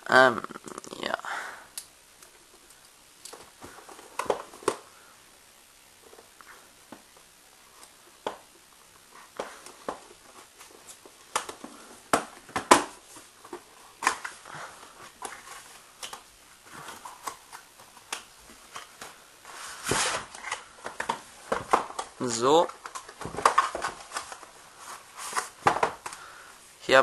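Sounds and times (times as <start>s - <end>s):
packaging scraping rustle: 16.7s - 25.7s.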